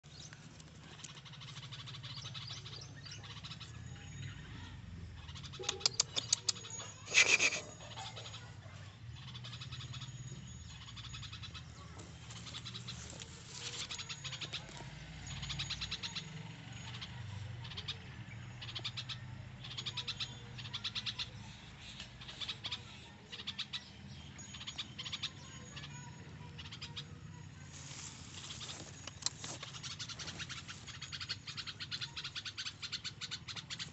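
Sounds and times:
birds chirping rapidly: 0:00.0 - 0:33.9
low steady background rumble: 0:00.1 - 0:07.0.

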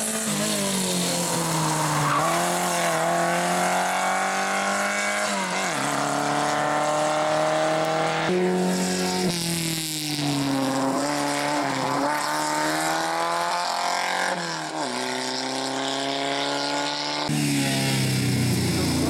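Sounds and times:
rally car engines at full throttle: 0:00.0 - 0:19.0.

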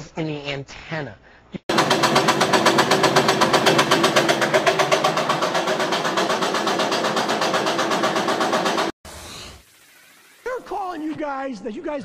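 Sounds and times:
machine rattling: 0:01.7 - 0:09.0.

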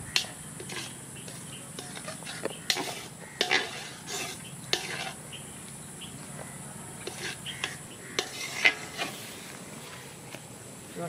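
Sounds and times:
steady high hiss: 0:00.0 - 0:11.0
meat scraping and tapping on plate: 0:00.1 - 0:05.2, 0:07.0 - 0:09.2.

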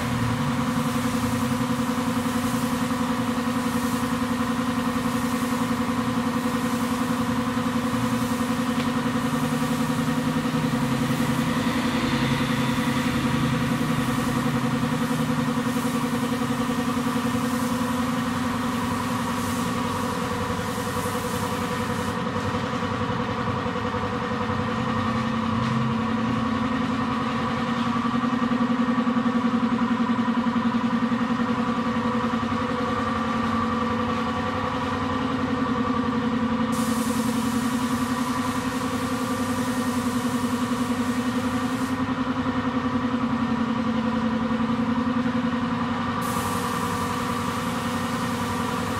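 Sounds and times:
spray gun air hiss: 0:00.0 - 0:22.9, 0:36.5 - 0:42.3, 0:46.1 - 0:48.9
air compressor humming: 0:00.0 - 0:48.9.

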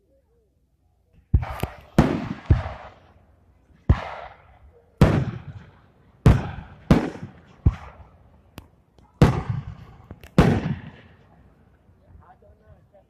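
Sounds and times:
firework shells bursting: 0:01.2 - 0:11.4
small firework cracks: 0:01.3 - 0:11.4.

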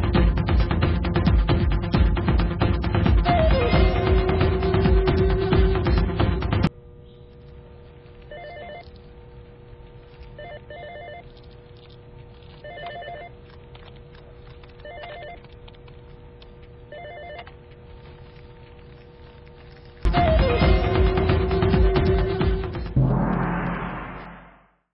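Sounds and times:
faint steady hum: 0:06.7 - 0:20.1
telephone ringing: 0:08.3 - 0:08.8, 0:10.4 - 0:11.3, 0:12.6 - 0:13.4, 0:14.8 - 0:15.4, 0:16.9 - 0:17.5.

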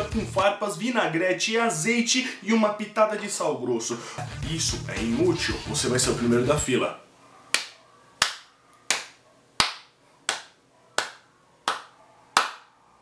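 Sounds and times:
person clapping slowly: 0:07.5 - 0:12.7.

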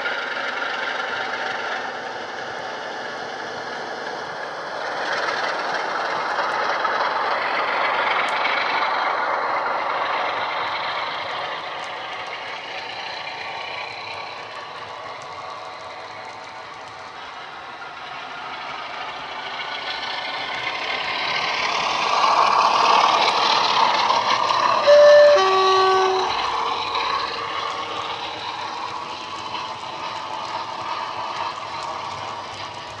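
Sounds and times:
model diesel engine sound: 0:00.0 - 0:33.0
two-tone horn: 0:24.8 - 0:26.5.

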